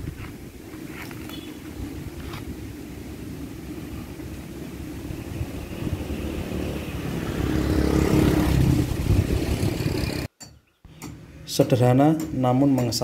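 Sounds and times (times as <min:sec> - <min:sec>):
vehicle engine running: 0:04.6 - 0:10.3.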